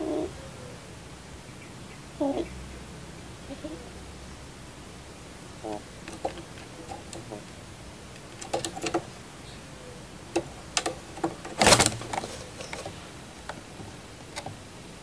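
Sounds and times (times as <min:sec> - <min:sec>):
bird clicks and taps in cage: 0:05.6 - 0:07.5, 0:08.1 - 0:09.2, 0:10.3 - 0:14.6
bird wings rustling: 0:05.6 - 0:09.5, 0:10.2 - 0:15.0.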